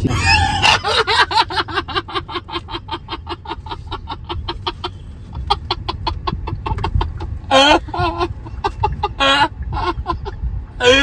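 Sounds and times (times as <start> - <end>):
man giggling: 0.0 - 4.8.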